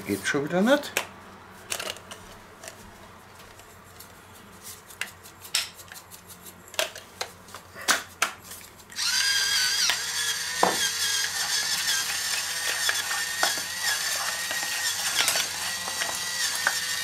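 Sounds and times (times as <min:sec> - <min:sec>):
electric pepper mill grinding: 0:08.8 - 0:17.0.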